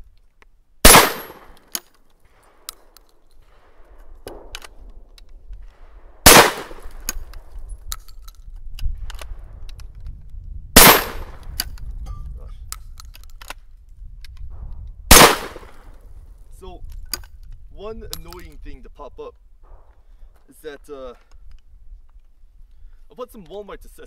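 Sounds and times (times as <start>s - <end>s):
shotgun shots: 0.8s - 1.7s, 3.5s - 4.9s, 5.7s - 7.2s, 10.8s - 11.6s, 15.1s - 15.9s.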